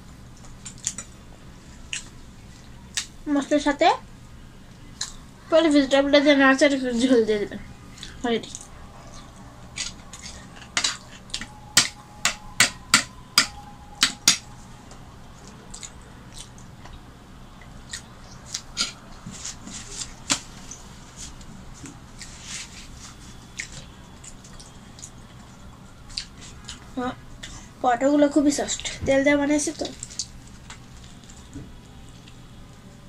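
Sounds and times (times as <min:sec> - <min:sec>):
mouth sounds of eating: 0:15.4 - 0:19.0.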